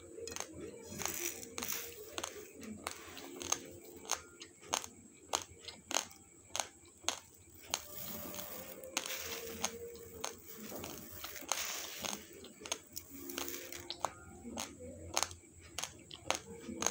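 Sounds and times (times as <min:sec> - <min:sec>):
dry rice crunched between teeth: 0:00.2 - 0:15.3
dry grains rustling in steel bowl: 0:00.3 - 0:04.0, 0:07.6 - 0:14.0.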